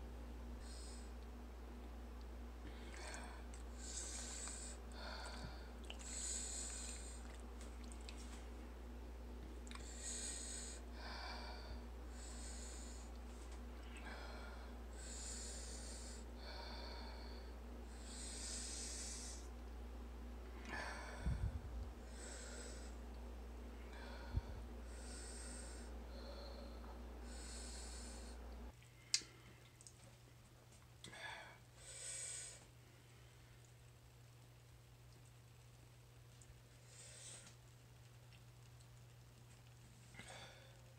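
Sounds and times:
low steady hum: 0.0s - 40.9s.

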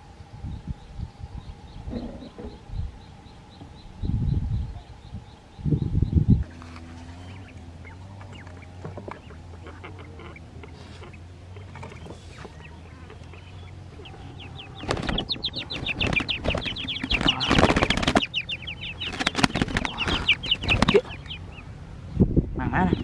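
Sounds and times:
bird squawking: 6.9s - 21.7s
bird wings beating: 13.7s - 21.4s.

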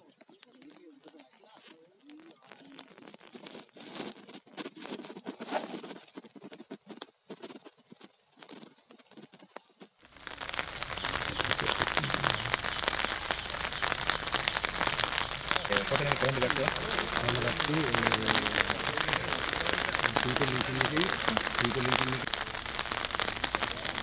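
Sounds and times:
fire crackling and popping: 0.0s - 24.0s
hiss of rain: 10.0s - 24.0s
high chirps: 10.2s - 24.0s.

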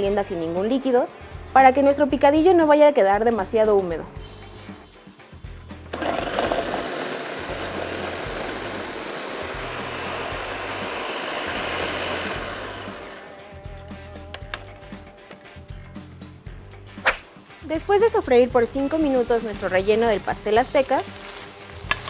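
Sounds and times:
blender chopping tomatoes: 5.9s - 13.3s, 21.8s - 22.0s.

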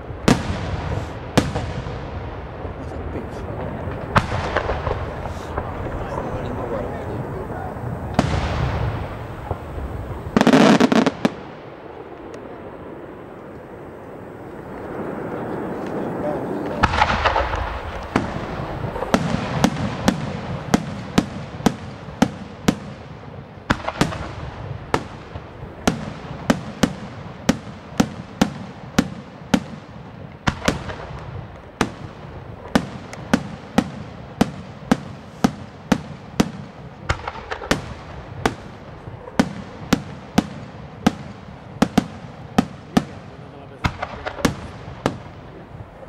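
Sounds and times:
firework crackling: 0.0s - 46.0s
firework shells bursting: 0.0s - 46.0s.

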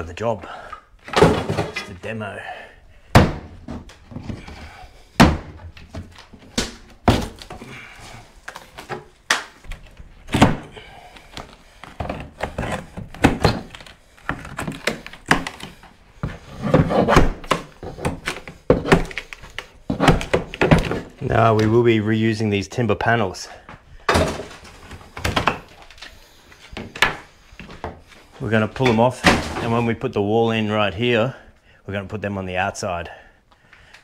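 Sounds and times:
timber wall being demolished: 0.2s - 21.8s, 24.0s - 25.9s, 28.5s - 30.1s.

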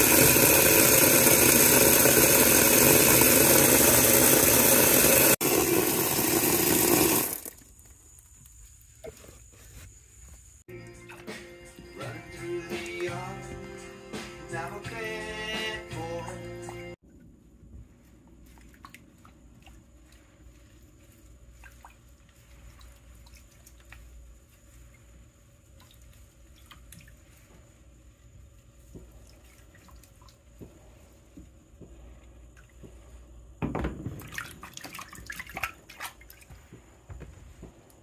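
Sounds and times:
water splashing: 0.0s - 7.6s, 18.4s - 25.0s, 34.2s - 36.5s
water sloshing in a plastic tub: 17.0s - 38.0s.

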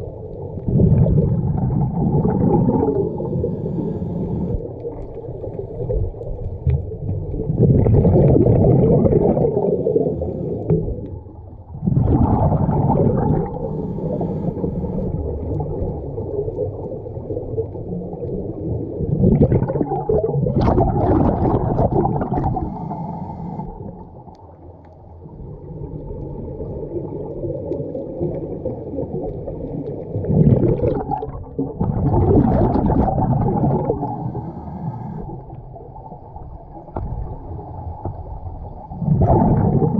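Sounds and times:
bubbling exhalations underwater: 0.0s - 22.8s, 25.5s - 34.5s, 35.3s - 39.9s.

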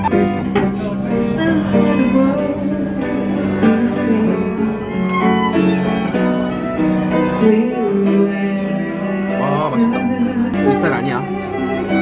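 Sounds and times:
violin melody: 0.0s - 12.0s.

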